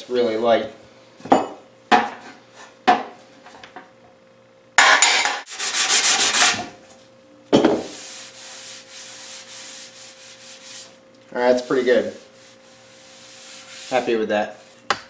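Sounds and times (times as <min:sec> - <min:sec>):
pad sanding sheet metal: 0:05.4 - 0:06.7, 0:07.9 - 0:14.7.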